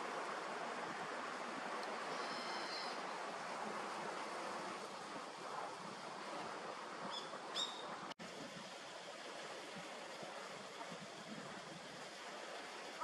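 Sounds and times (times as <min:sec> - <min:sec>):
kingfisher call notes: 0:02.1 - 0:03.0.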